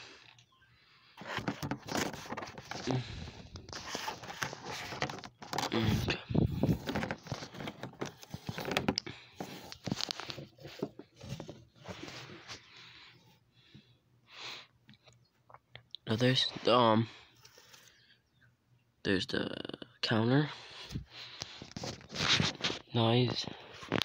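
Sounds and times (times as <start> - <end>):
cardboard scraping and rustling: 1.2 - 12.7, 21.5 - 22.9.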